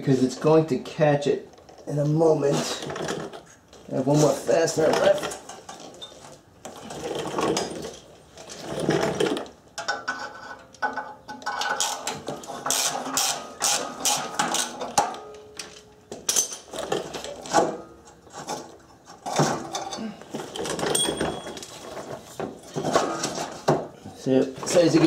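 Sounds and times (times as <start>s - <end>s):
metallic clinks: 20.8s - 21.7s.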